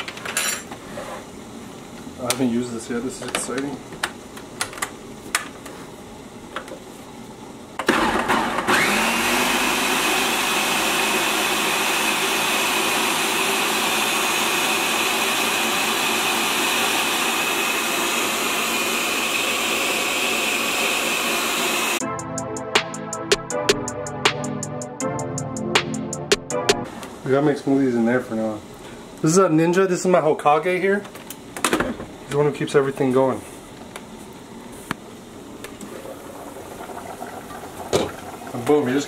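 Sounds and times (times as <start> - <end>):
blender motor whining: 7.8 - 22.0.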